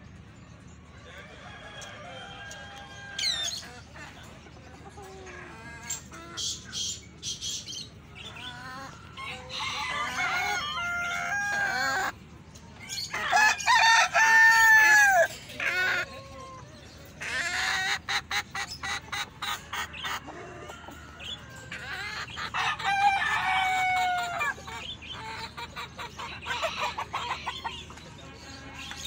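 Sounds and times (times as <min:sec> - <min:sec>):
chickens clucking: 0:00.0 - 0:29.0
roosters crowing: 0:01.0 - 0:03.7, 0:08.2 - 0:12.2, 0:12.8 - 0:17.6, 0:19.8 - 0:25.5.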